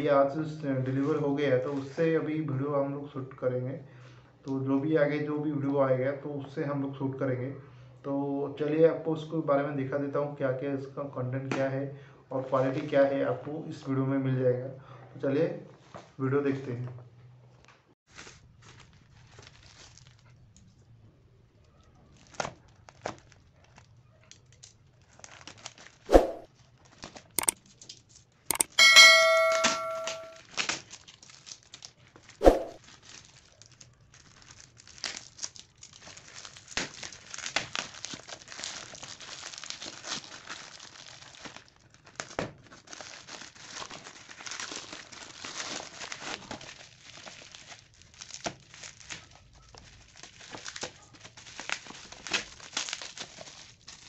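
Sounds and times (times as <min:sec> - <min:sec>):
plastic crinkling: 0:18.1 - 0:20.3, 0:24.6 - 0:27.4, 0:30.5 - 0:54.0
sharp clicks and snaps: 0:28.5 - 0:28.8
ringing chime: 0:28.5 - 0:30.4
plastic mailer tearing: 0:32.8 - 0:54.0.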